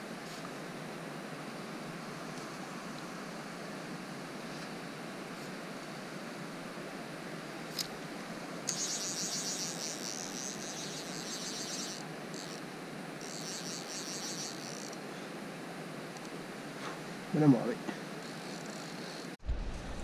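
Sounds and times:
steady low hiss: 0:00.0 - 0:20.0
fishing reel ratchet buzzing: 0:08.7 - 0:12.6, 0:13.2 - 0:15.0, 0:18.2 - 0:19.4.

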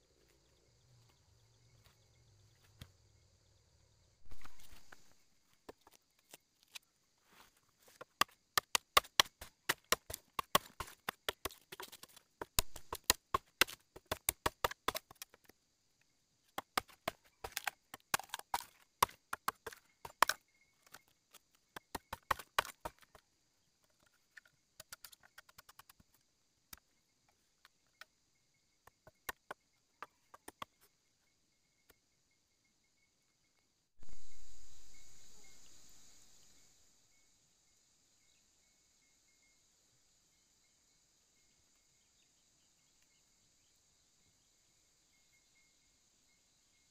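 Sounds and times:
machete chopping bamboo: 0:08.0 - 0:15.4, 0:16.6 - 0:20.4, 0:21.8 - 0:23.2
bamboo snapping: 0:16.6 - 0:21.0.

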